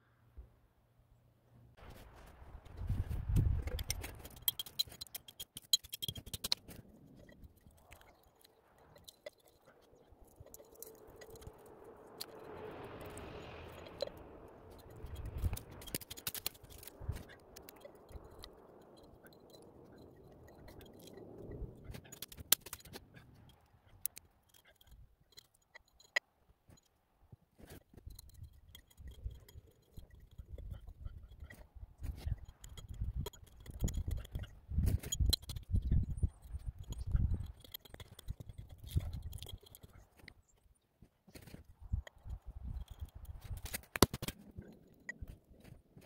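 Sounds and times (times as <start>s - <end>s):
hatchet scraping and tapping bark: 2.7s - 26.9s, 27.5s - 40.6s, 41.3s - 46.0s
soft rushing noise: 10.9s - 16.0s.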